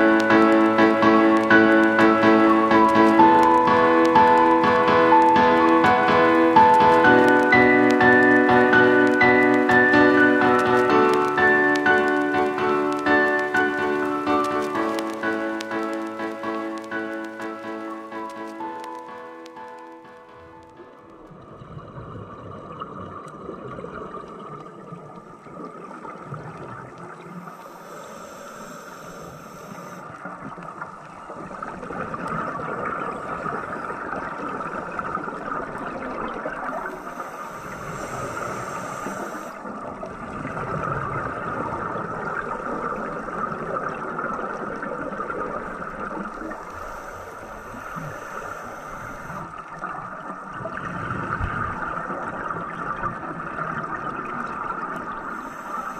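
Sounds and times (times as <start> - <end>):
rushing gurgling water: 20.5 - 27.8, 30.0 - 55.9
faint high hiss: 27.0 - 32.2, 36.6 - 40.4, 45.2 - 50.3, 55.0 - 55.9.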